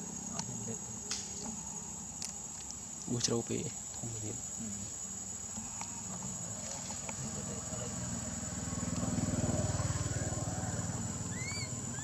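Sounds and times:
high insect drone: 0.0s - 12.0s
vehicle engine passing by: 7.2s - 12.0s.

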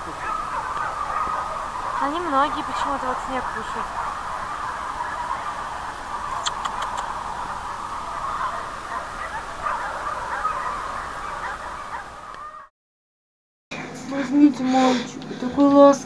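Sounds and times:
distant dogs barking and yelping: 0.0s - 12.7s.

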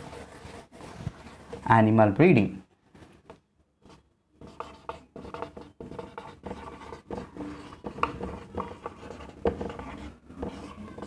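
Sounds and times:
marker squeaking on a whiteboard: 3.8s - 11.0s.

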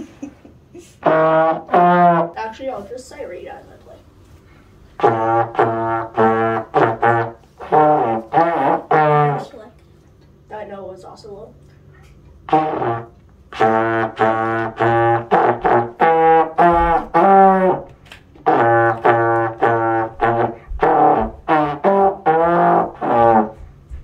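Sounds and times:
trombone playing short notes: 5.0s - 9.6s, 12.4s - 23.6s.

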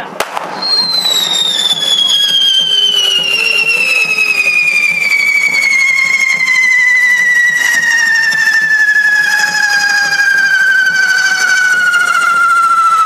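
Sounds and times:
firework whistle sliding down: 0.4s - 13.0s
fainter falling whistle: 0.6s - 13.0s.

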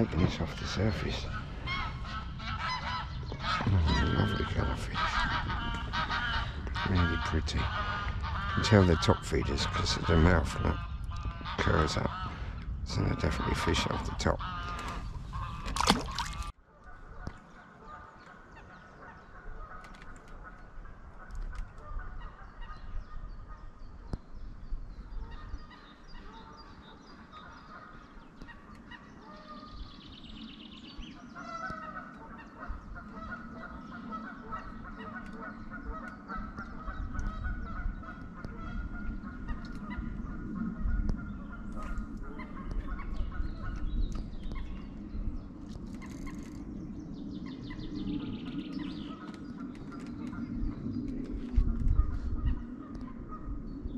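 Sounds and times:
low rumble: 0.0s - 16.5s
geese honking: 0.0s - 23.7s, 25.2s - 29.9s, 30.9s - 44.9s.

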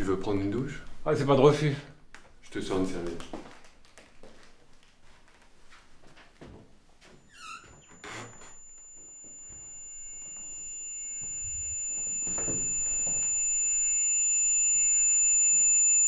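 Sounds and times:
faint shuffling movement: 2.6s - 7.3s
short falling squeak: 7.3s - 10.6s
high steady ringing tone: 7.3s - 16.0s.

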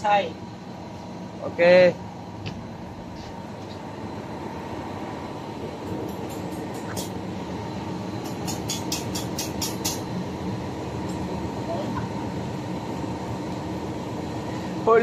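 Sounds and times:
engine room machinery drone: 0.0s - 15.0s
welding clicks and crackles: 5.8s - 7.2s, 8.2s - 10.2s.

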